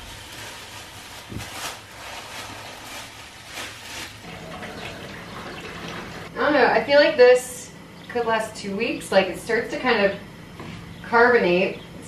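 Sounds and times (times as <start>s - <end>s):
liquid pouring through a funnel: 4.1s - 6.4s.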